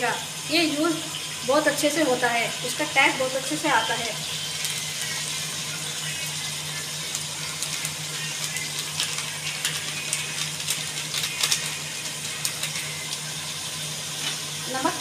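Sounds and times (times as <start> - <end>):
spice powder pouring: 4.2 - 14.7
plastic packet crinkling: 6.0 - 13.5.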